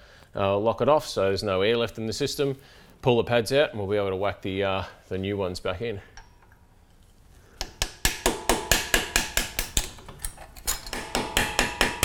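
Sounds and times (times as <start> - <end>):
rapid metal tapping: 10.9 - 12.0.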